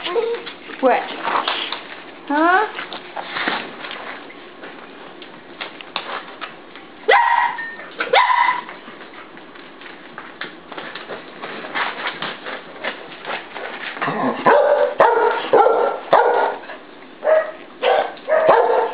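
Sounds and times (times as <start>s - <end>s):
puppies barking: 7.1s - 8.8s, 14.4s - 18.9s.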